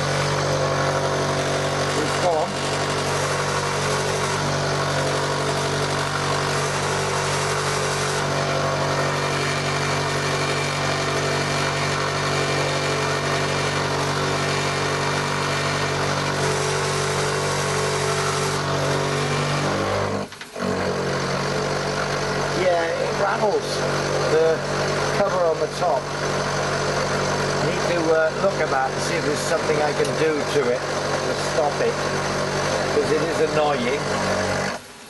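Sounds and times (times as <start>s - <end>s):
milling machine running: 0.0s - 35.0s.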